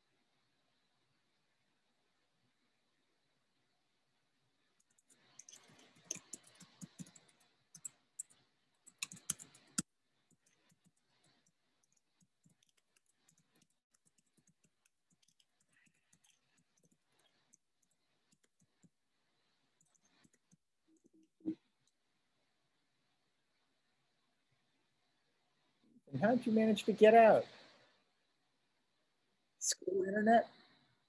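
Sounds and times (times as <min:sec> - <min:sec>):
typing on computer keyboard: 0:04.8 - 0:18.9, 0:19.8 - 0:21.3.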